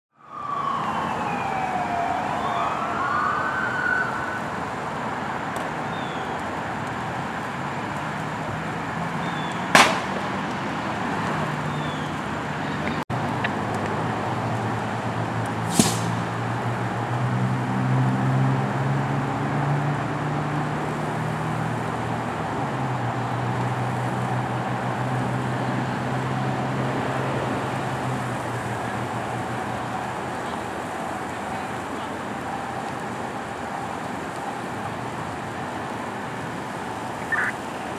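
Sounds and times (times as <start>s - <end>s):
siren wailing: 0.1s - 4.6s, 37.2s - 37.6s
burning car rushing noise: 0.3s - 37.9s.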